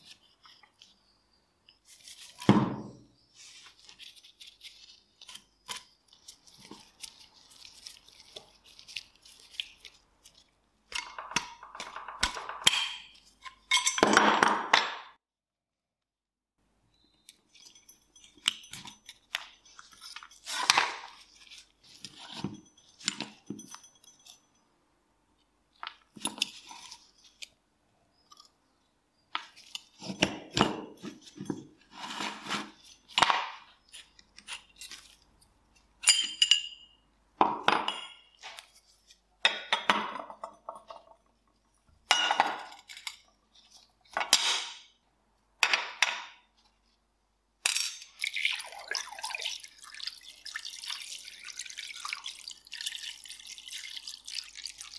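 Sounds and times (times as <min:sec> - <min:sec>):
liquid pouring into glass dish: 0:48.0 - 0:54.9.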